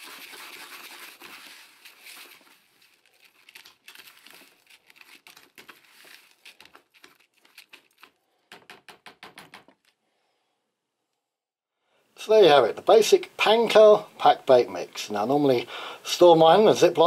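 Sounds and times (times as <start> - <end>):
spoon stirring crunchy bait in bucket: 0.0 - 8.3.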